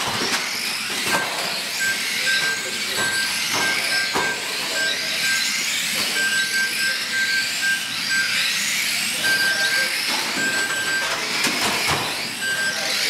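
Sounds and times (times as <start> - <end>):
electric motor whines: 0.0 - 13.0
short beeps: 1.8 - 8.4, 9.1 - 11.2, 12.3 - 13.0.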